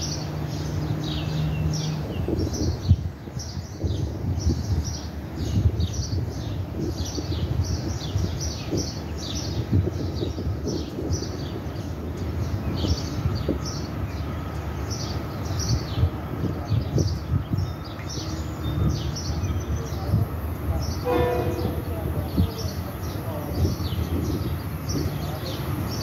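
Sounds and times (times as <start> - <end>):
small birds chirping: 0.0 - 26.0
low uneven rumble: 15.9 - 26.0.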